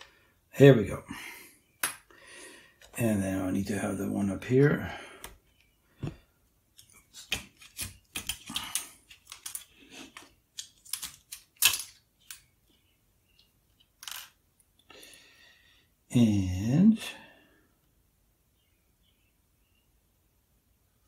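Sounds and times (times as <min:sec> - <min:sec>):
small hard objects clicking: 0:07.3 - 0:12.4.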